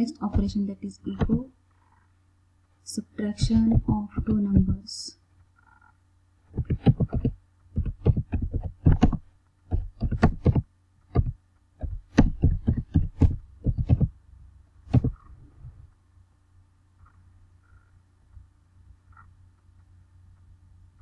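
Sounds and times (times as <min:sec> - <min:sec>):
faint low hum: 0:00.0 - 0:21.0
typing on a keyboard: 0:06.6 - 0:11.4.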